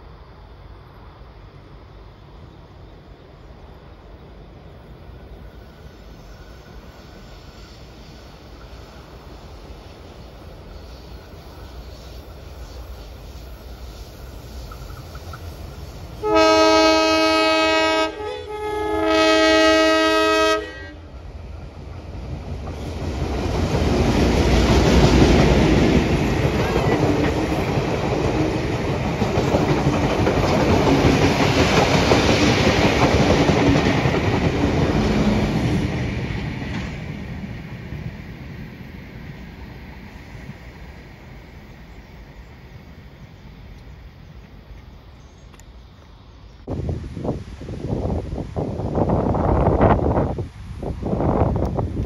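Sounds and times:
locomotive engines passing: 0.8 - 46.4
locomotive horn blasts: 16.2 - 21.0.

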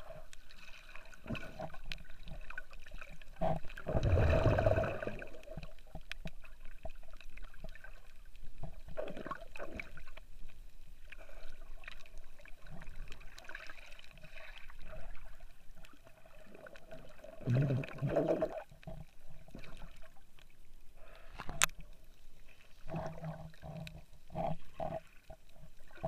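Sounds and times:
underwater gurgling and sloshing: 0.0 - 26.0
water rushing: 3.7 - 5.6.

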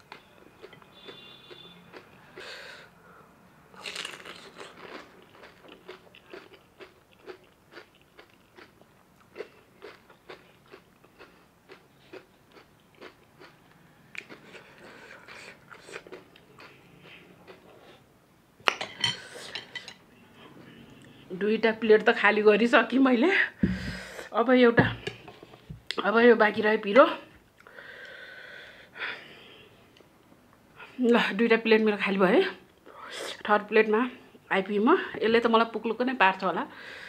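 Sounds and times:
steady chewing: 3.9 - 18.0.

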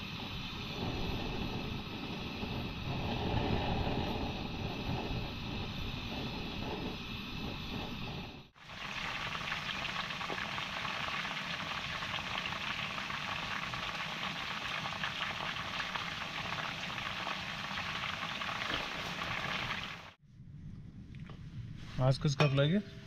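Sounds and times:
chicken frying in oil: 8.5 - 20.2.

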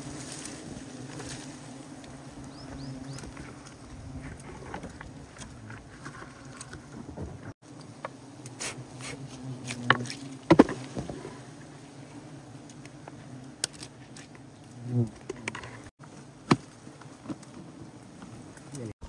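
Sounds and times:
honeybees buzzing: 0.0 - 19.0.

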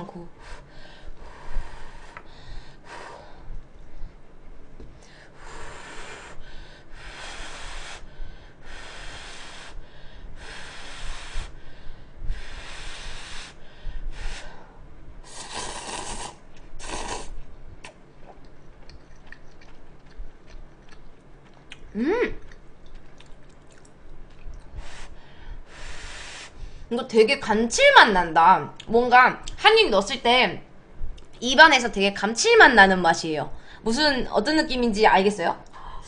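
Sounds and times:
soft mouth sounds: 15.2 - 26.6
noodles slurped: 15.3 - 25.0.

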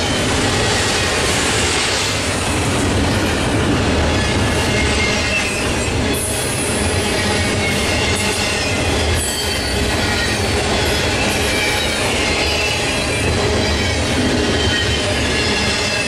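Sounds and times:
train wheels rumbling on rail: 0.0 - 16.0
high wheel squeal: 7.0 - 16.0.

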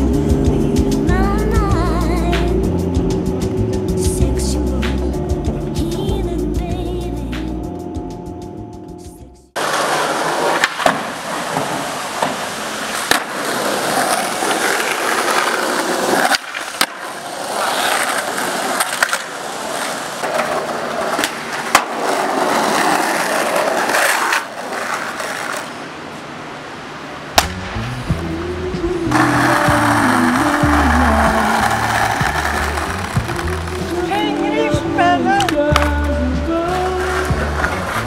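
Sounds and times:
skateboard clacking on ground: 9.6 - 25.9, 29.1 - 38.0
skateboard wheels rolling on pavement: 9.6 - 38.0.

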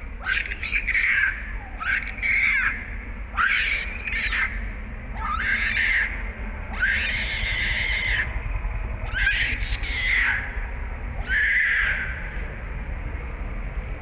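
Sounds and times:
baby monkey screaming: 0.2 - 8.4, 9.0 - 12.3.

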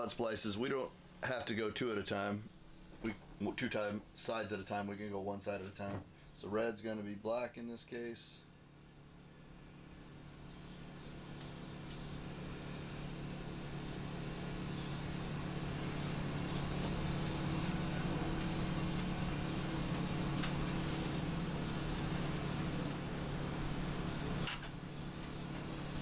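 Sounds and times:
low engine hum: 9.2 - 26.0
wires and connectors clicking: 16.8 - 20.8.

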